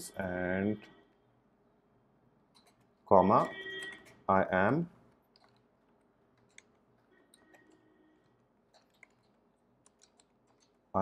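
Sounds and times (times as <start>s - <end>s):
keyboard typing clicks: 2.5s - 4.2s, 5.3s - 5.7s, 6.3s - 7.8s, 8.7s - 10.8s.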